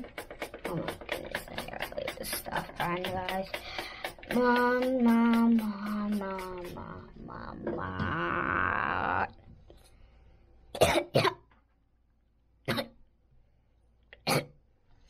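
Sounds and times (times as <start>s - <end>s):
child's rasping vocal sound: 2.5s - 9.3s
child coughing: 10.8s - 11.5s, 12.7s - 13.0s, 14.2s - 14.6s.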